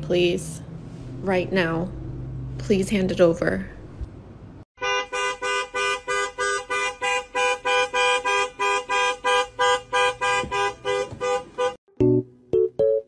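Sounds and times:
car horn honking: 4.8 - 11.8.

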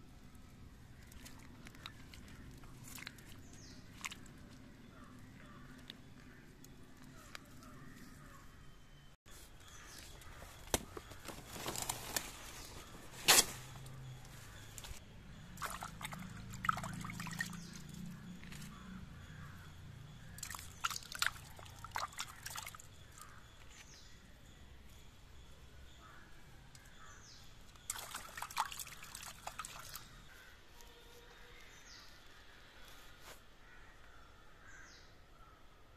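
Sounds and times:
mud sloshing and squelching: 0.4 - 8.3, 14.5 - 18.9, 20.2 - 23.3, 27.8 - 30.2.

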